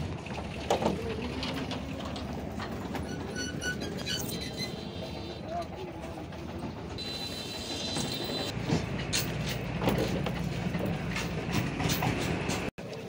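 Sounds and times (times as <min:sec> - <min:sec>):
vehicle rumble: 0:00.0 - 0:13.0
cow hooves on wooden ramp: 0:07.9 - 0:12.7.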